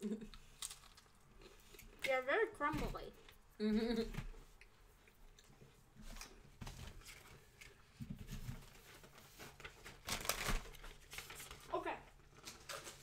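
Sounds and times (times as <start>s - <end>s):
packaging rustling and crinkling: 6.1s - 13.0s.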